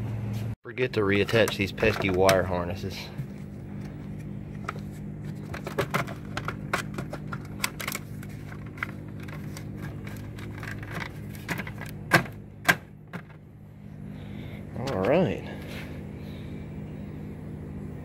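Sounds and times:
steady low hum: 0:00.0 - 0:18.0
plastic clicks and rattles: 0:05.4 - 0:13.4.

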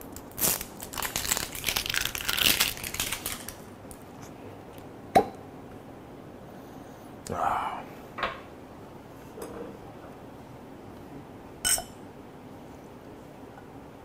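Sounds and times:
bottle seal crinkling and tearing: 0:00.2 - 0:03.6.

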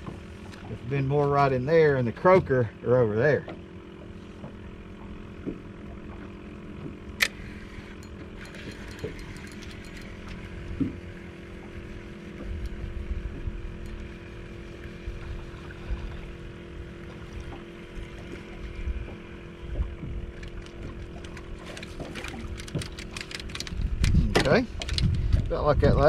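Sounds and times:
motor hum: 0:00.0 - 0:26.0
faint ticks of reel: 0:03.5 - 0:15.5
fishing reel click: 0:07.2 - 0:10.4.

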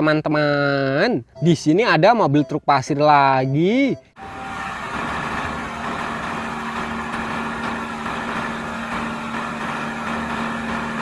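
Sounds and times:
truck diesel engine running: 0:04.2 - 0:11.0.

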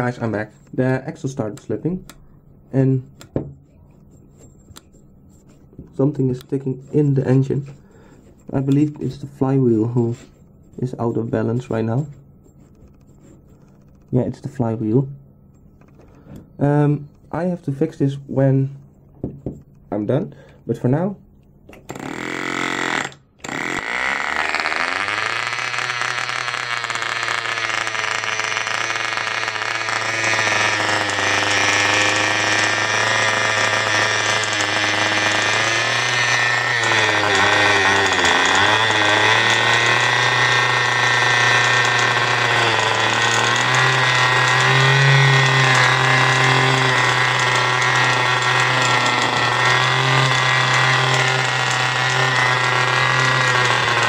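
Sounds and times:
model engine running: 0:22.0 - 0:54.0.

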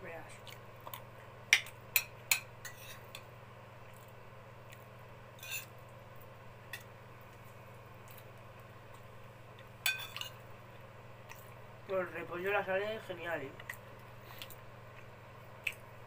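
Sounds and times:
steady low hum: 0:00.0 - 0:16.0
cutlery clicking on a plate: 0:01.5 - 0:03.3
cutlery scrape: 0:02.0 - 0:03.2, 0:05.4 - 0:05.7, 0:09.8 - 0:10.4.

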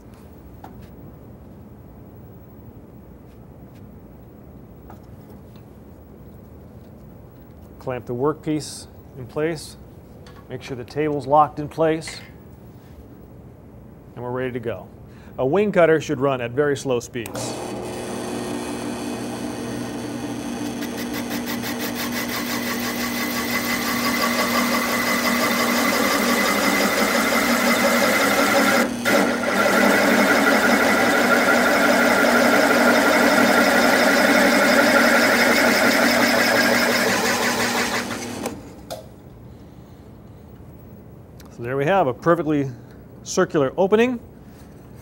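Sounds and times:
drill press cutting wood: 0:17.3 - 0:38.8.

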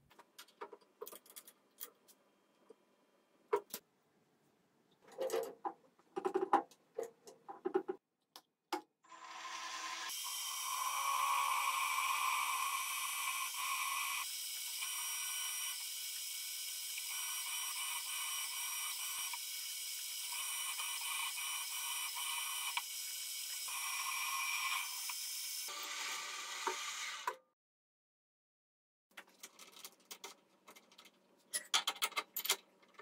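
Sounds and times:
milling machine drilling metal: 0:09.3 - 0:26.9.

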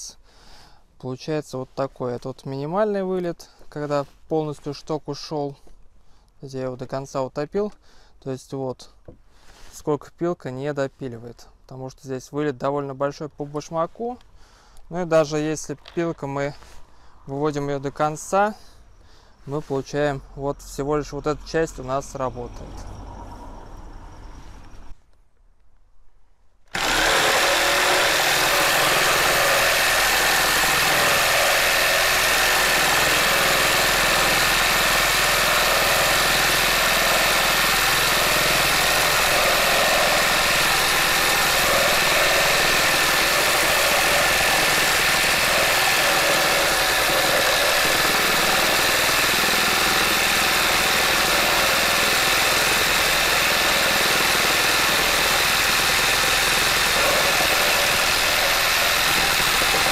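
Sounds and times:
reciprocating saw cutting wood: 0:26.7 - 0:59.9.

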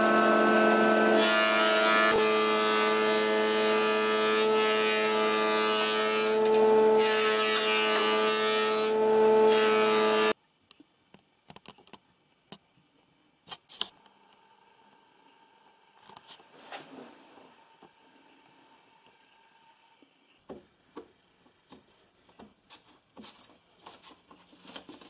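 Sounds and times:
planer machine hum: 0:00.0 - 0:10.3.

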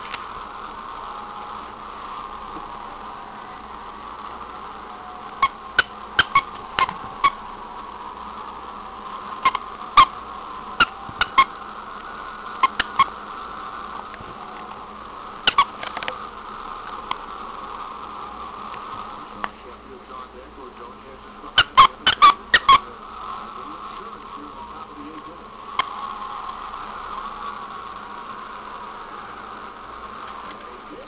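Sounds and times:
squeaky toy squeaks: 0:05.4 - 0:07.4, 0:10.8 - 0:11.5, 0:15.5 - 0:15.7, 0:21.6 - 0:22.8.

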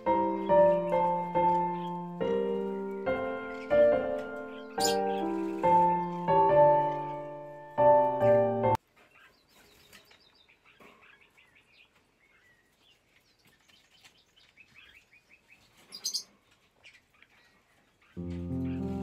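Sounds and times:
music: 0:00.0 - 0:08.8, 0:18.2 - 0:19.0
parakeet chirping: 0:04.4 - 0:05.9, 0:15.9 - 0:16.3.

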